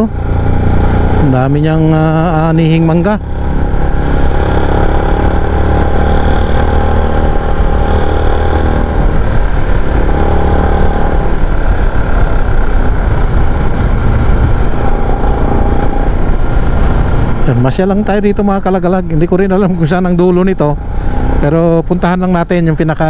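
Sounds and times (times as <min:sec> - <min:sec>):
motorcycle engine running: 0:00.0 - 0:23.0
road and wind noise: 0:00.0 - 0:23.0.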